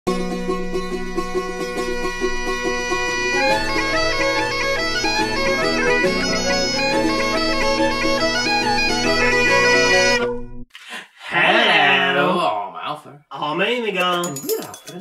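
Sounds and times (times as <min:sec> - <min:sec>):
intro theme music: 0:00.1 - 0:10.6.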